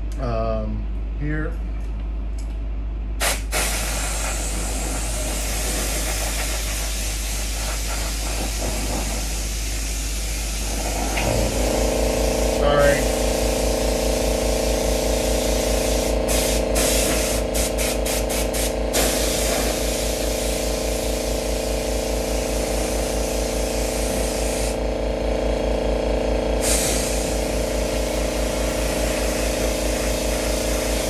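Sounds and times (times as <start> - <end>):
air compressor humming: 0.0 - 31.0
spray gun hissing: 3.2 - 25.2, 26.5 - 31.0.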